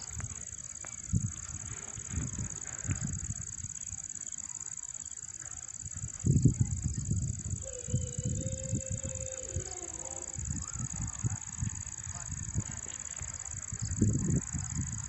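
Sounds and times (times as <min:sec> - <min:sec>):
wind buffeting microphone: 0:00.0 - 0:04.0, 0:05.8 - 0:15.0
high-pitched hiss: 0:00.0 - 0:15.0
faint held tone: 0:07.6 - 0:11.0.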